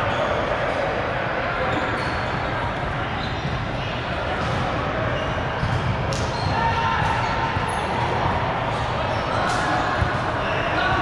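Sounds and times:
voices echoing in hall: 0.0 - 11.0
ball bouncing on gym floor: 5.6 - 7.7.

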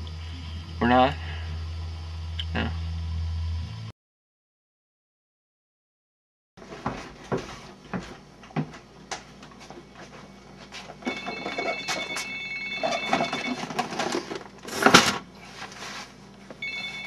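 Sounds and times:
phone ringing: 11.0 - 14.2, 16.6 - 17.0.

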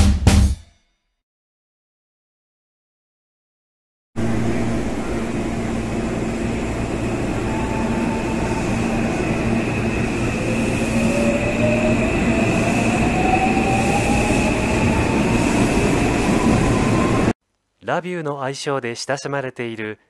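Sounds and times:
train motor whine rising: 4.2 - 17.3
electric train rumble: 4.2 - 17.4.

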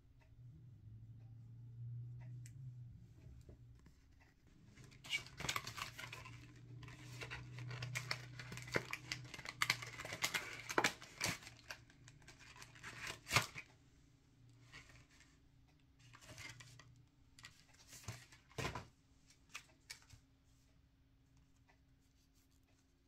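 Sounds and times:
packaging crinkling and tearing: 4.7 - 13.7.

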